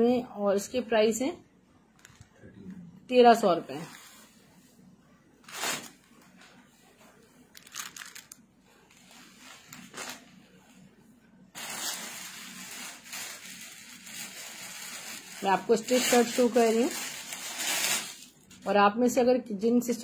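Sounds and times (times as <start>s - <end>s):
cloth and plastic rustling: 5.4s - 10.9s, 11.5s - 18.7s.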